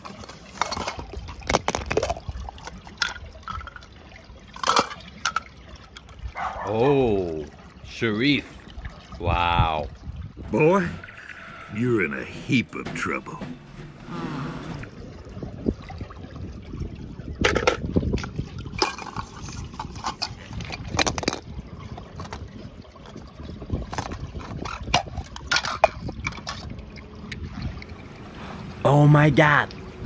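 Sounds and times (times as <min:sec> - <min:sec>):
toy cars clicking and knocking: 0:00.0 - 0:03.9, 0:04.6 - 0:06.1, 0:18.7 - 0:21.5, 0:23.9 - 0:26.7
water sloshing and trickling: 0:00.0 - 0:30.0
water splashes: 0:00.0 - 0:30.0.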